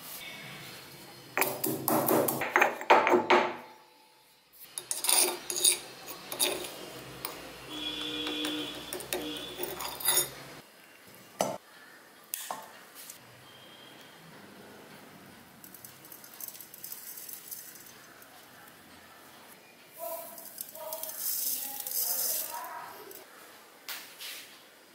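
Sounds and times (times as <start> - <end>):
metal spoon scraping stone: 4.6 - 10.5.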